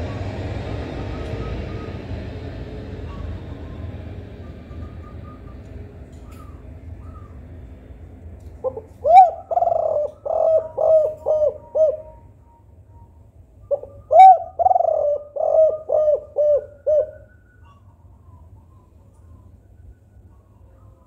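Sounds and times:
dove cooing: 8.6s - 12.4s, 13.7s - 17.9s.

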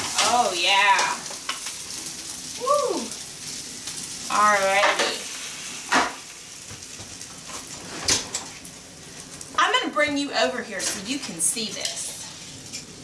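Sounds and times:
chicken sizzling on metal pan: 0.0s - 13.0s.

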